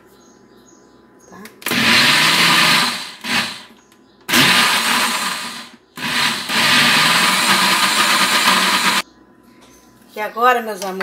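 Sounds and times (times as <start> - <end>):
electric blender beating batter: 1.7 - 3.7, 4.3 - 9.0.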